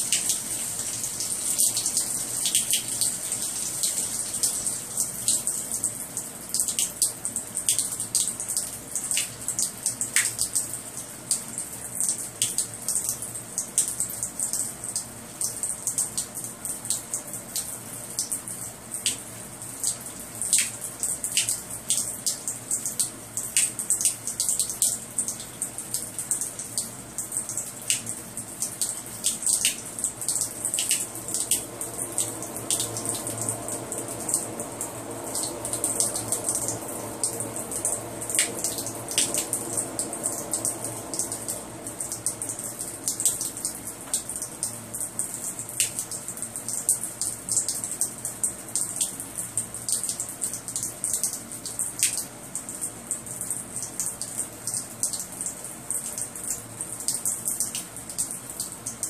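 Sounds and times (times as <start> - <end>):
water running hiss: 0.0 - 5.9, 28.0 - 46.0
water dripping: 0.0 - 59.0.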